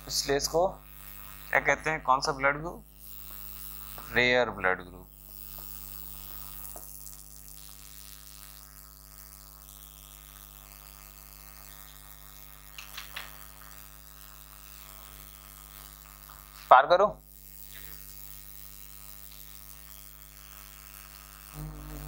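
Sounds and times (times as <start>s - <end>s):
electrical mains hum: 21.5s - 22.0s.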